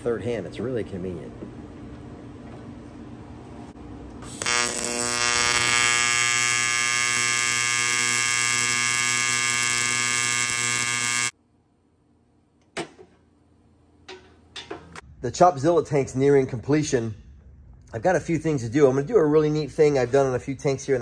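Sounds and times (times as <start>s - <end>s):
welder buzzing: 4.1s - 11.4s.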